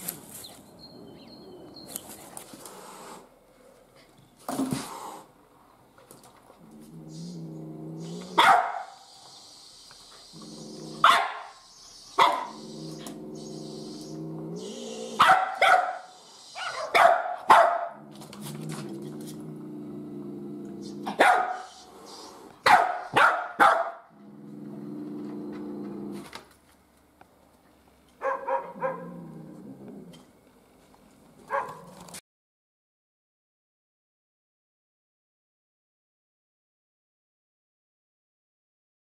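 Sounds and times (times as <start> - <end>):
dog growling low: 6.6 - 8.4, 10.3 - 11.1, 12.5 - 15.2, 18.0 - 21.2, 24.1 - 26.3, 28.9 - 30.3
dog barking sharply: 8.4 - 9.0, 11.0 - 11.5, 12.2 - 12.6, 15.2 - 18.0, 21.1 - 21.7, 22.6 - 24.1, 28.2 - 29.1, 31.5 - 31.9.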